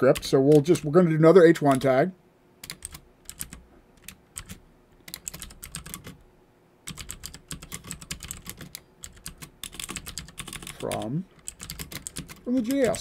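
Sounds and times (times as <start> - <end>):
typing on computer keyboard: 2.6 - 6.2, 6.8 - 13.0.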